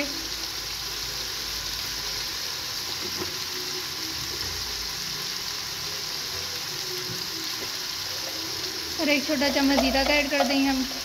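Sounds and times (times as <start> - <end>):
chicken sizzling in a pan: 0.0 - 11.0.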